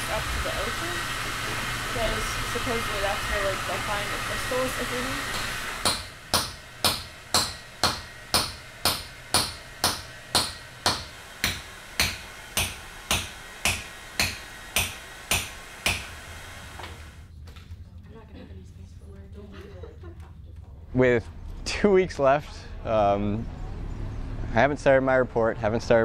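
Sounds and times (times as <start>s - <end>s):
hammer striking chisel on rock: 5.8s - 16.1s.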